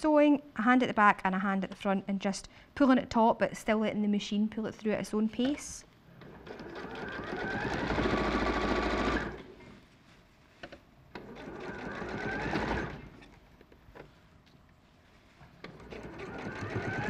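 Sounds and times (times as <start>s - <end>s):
sewing machine stitching: 6.2s - 9.6s, 11.1s - 13.3s, 15.6s - 17.0s.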